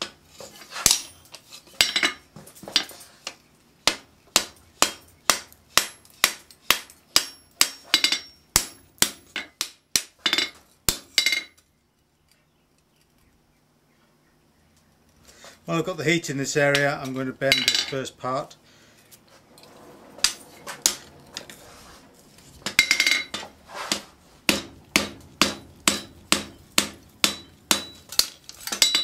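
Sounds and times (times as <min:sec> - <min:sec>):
hammer striking metal on anvil: 0:03.9 - 0:09.2, 0:22.6 - 0:29.0.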